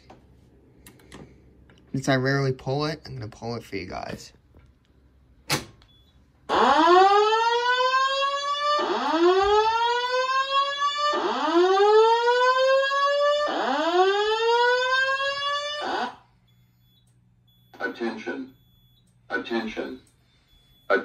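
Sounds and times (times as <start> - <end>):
fire alarm whooping tone: 5.9 - 21.0.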